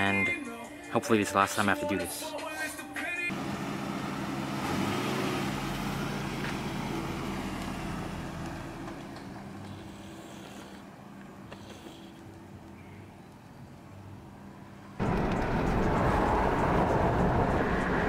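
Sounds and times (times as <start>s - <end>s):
car engine driving off: 3.3s - 10.8s, 15.0s - 18.0s.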